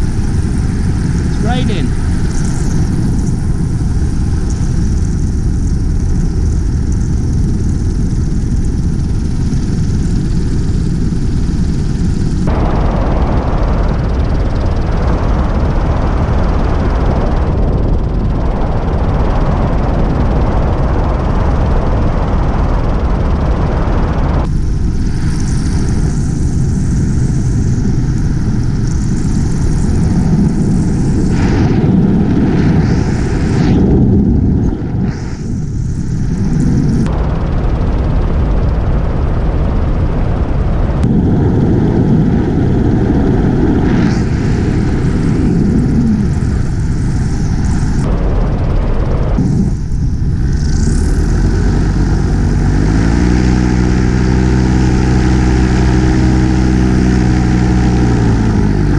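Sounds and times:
paramotor engine drone: 0.0 - 58.9
wind rushing over microphone: 0.0 - 58.9.

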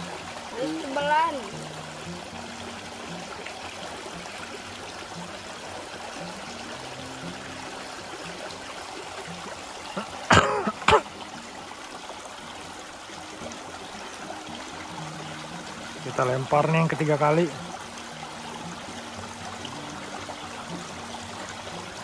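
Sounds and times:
small river running: 0.0 - 22.0
person coughing: 10.3 - 11.0.

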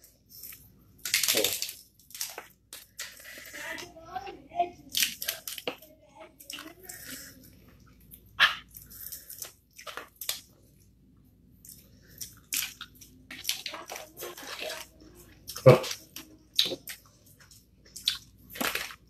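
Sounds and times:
wet chewing and lip-smacking: 6.4 - 19.0.

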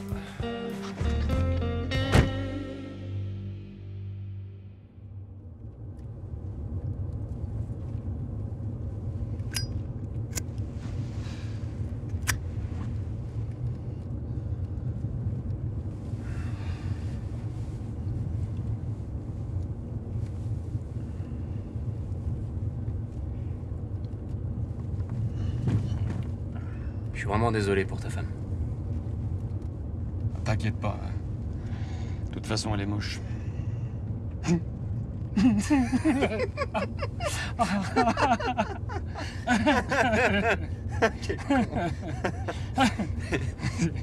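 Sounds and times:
car engine and road rumble: 0.0 - 44.0.

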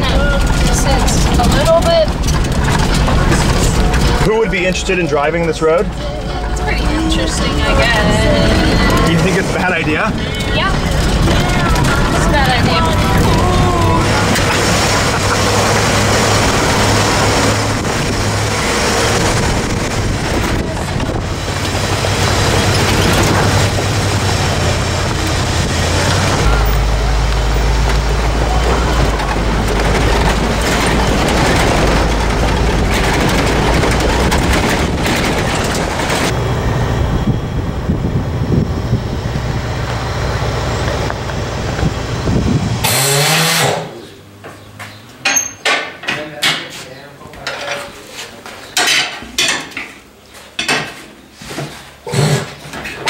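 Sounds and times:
tyre-changing machine clatter: 0.0 - 5.1, 27.4 - 36.4
tyres on gravel: 0.0 - 45.6
car engine droning: 0.0 - 46.3.

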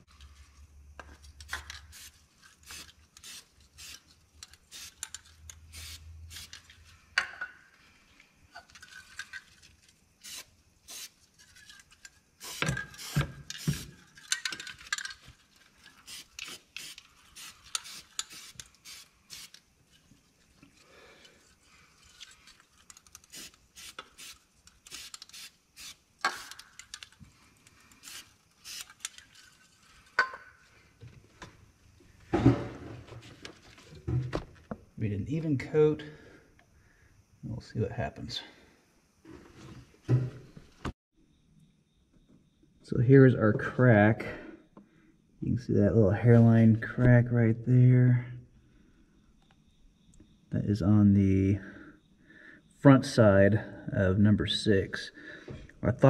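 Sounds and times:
aerosol can clicks and rattles: 15.8 - 19.7, 22.2 - 29.5
aerosol can shaken and sprayed: 16.0 - 19.6, 23.3 - 26.6.

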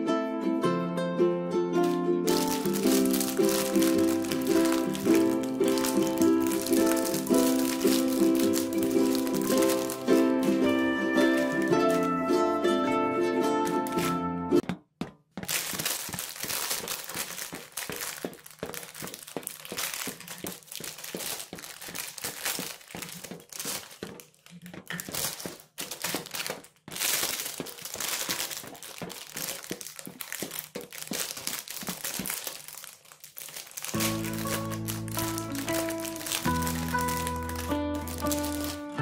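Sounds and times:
wrapper tearing open: 1.8 - 12.5, 13.6 - 14.2, 15.4 - 39.0
foil wrappers crinkling: 1.8 - 12.8, 13.6 - 14.2, 15.4 - 39.0.

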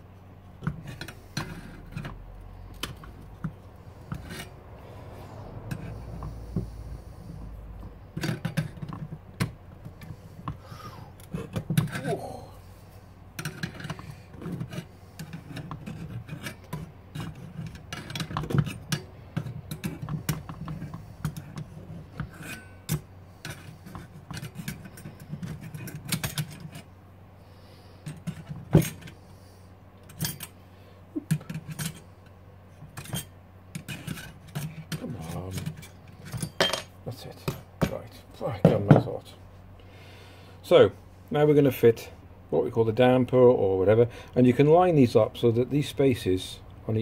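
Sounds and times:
screwdriver scraping on metal stove: 0.6 - 4.6, 5.6 - 6.8, 13.4 - 26.9, 31.3 - 36.6.

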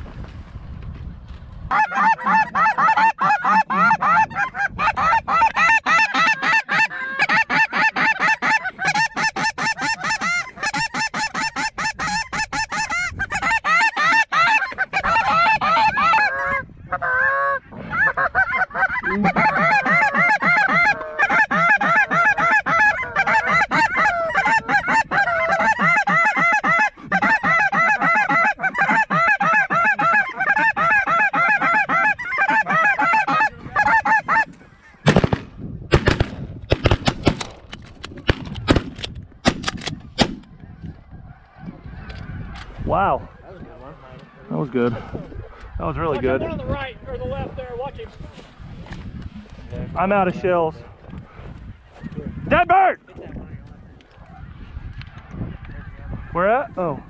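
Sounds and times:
snow geese honking: 1.7 - 35.1, 40.5 - 46.9.

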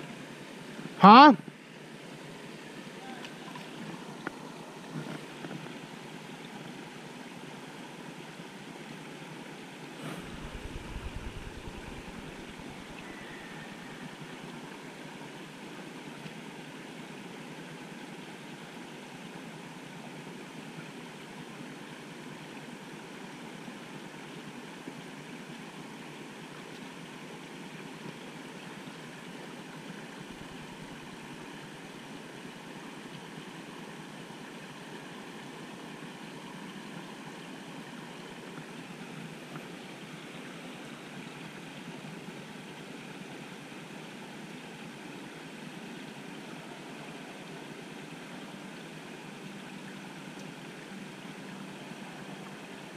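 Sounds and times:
outdoor background hiss: 0.0 - 52.9
low rumble: 10.2 - 13.0.

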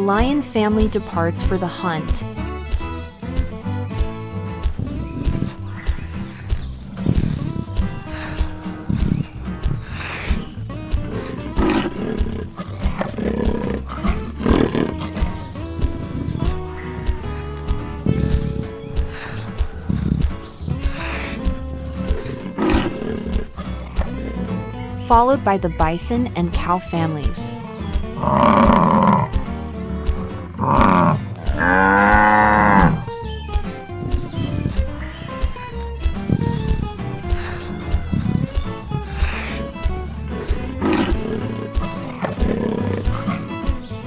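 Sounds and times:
background music with steady beat: 0.0 - 44.0
lion roaring: 4.8 - 24.6, 28.2 - 29.4, 30.5 - 33.1, 33.9 - 43.8
cows mooing: 11.0 - 24.6, 28.2 - 29.4, 30.6 - 33.1, 33.9 - 44.0.

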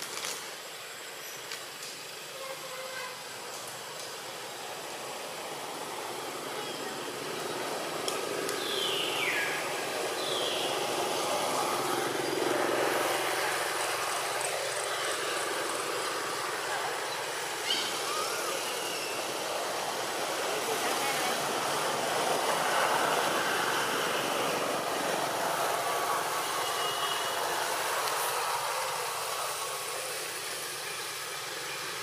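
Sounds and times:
outdoor background rush: 0.0 - 32.0.

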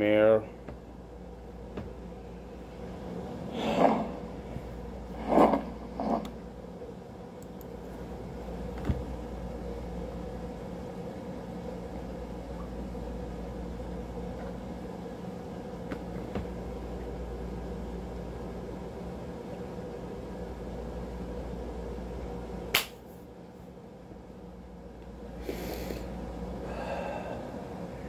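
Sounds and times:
low fan hum: 0.0 - 28.0
sharp click: 22.7 - 23.0
breathy exhales: 25.4 - 27.6.

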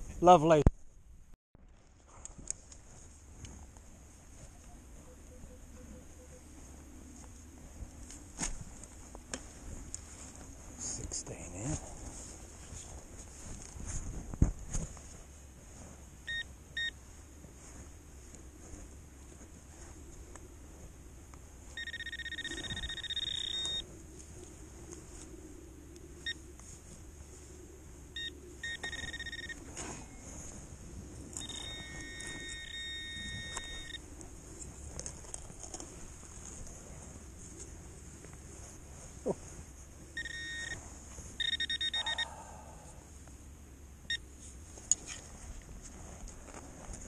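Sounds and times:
metal detector beeping: 16.2 - 17.0, 21.7 - 23.9, 26.2 - 26.4, 28.2 - 30.6, 31.3 - 34.1, 40.1 - 42.4.

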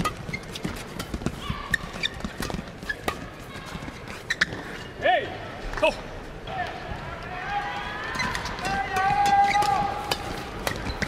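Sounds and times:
racket hitting shuttlecock: 0.0 - 4.3, 8.2 - 11.0
shoes squeaking on court floor: 0.0 - 5.0, 8.1 - 11.0.

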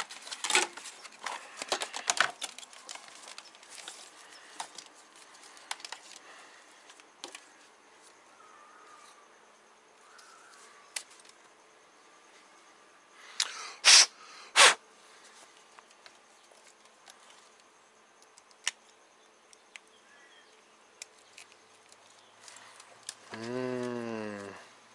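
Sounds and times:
plastic parts rustling and clicking: 0.0 - 8.2, 21.0 - 23.3.

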